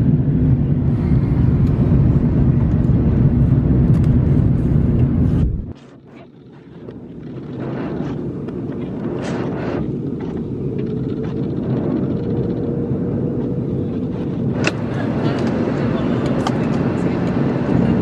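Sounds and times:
airliner cabin roar: 0.0 - 18.0.

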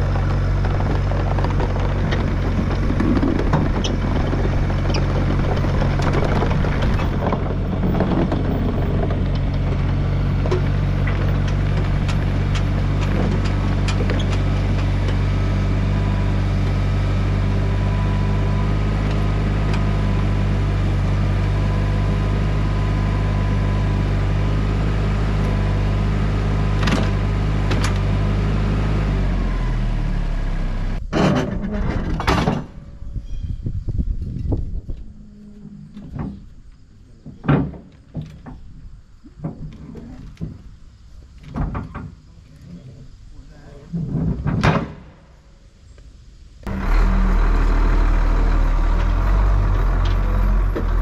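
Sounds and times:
engine running and winding down: 0.0 - 31.0, 46.6 - 51.0
loud clunks: 31.1 - 32.9, 37.2 - 38.8, 44.1 - 45.3.

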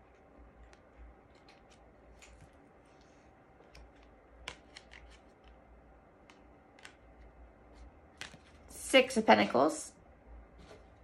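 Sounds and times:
cards clicking and snapping: 3.7 - 5.6.

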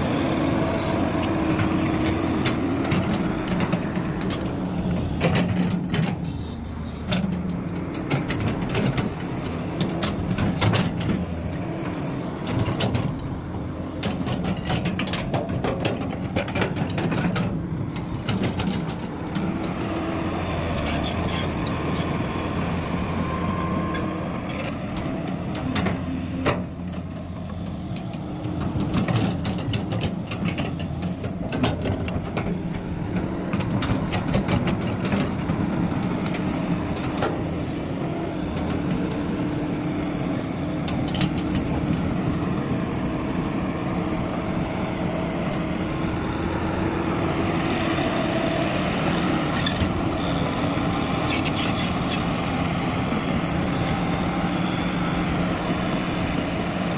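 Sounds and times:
excavator diesel engine running: 0.0 - 56.9
clanks and knocks: 14.0 - 19.5, 27.9 - 37.4.

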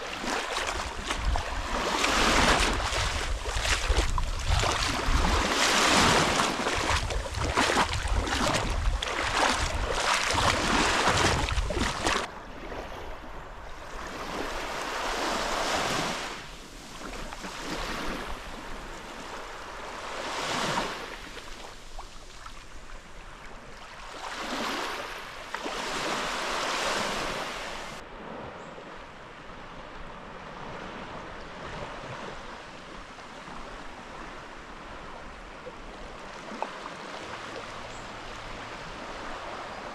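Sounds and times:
wind buffeting microphone: 0.0 - 12.3
sea waves washing in: 0.0 - 22.0.

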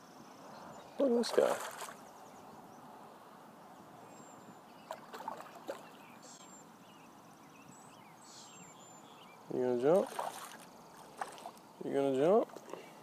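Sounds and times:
fish splashing at water surface: 1.3 - 2.0, 4.9 - 5.9, 10.0 - 11.6.

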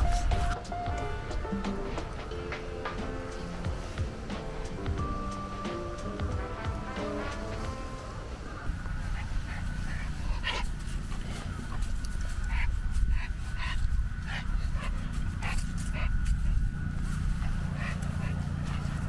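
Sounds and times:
dog panting: 0.0 - 7.9, 8.7 - 19.0
low rumble: 6.2 - 19.0.

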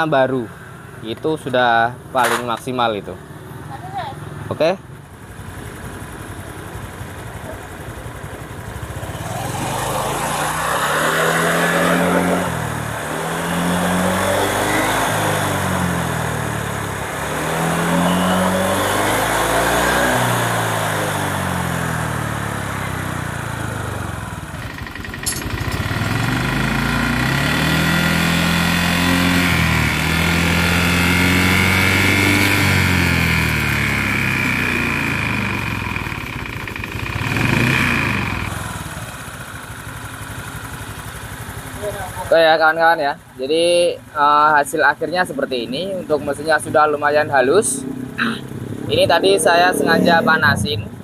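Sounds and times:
sharp click: 2.2 - 2.7
scooter engine revving: 5.1 - 42.6, 45.2 - 51.0.

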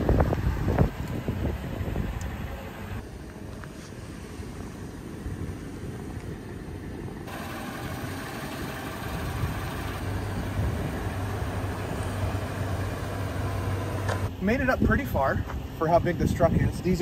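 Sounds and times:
truck engine at low revs: 0.0 - 17.0.

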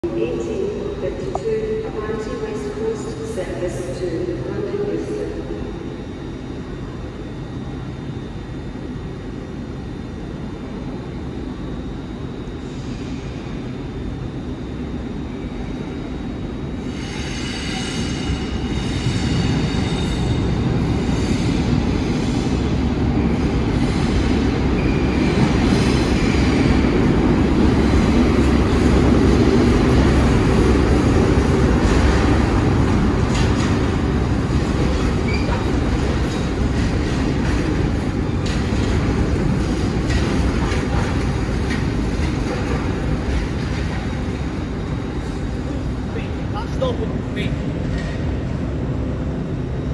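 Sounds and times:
train wheels rumbling: 16.8 - 49.9.

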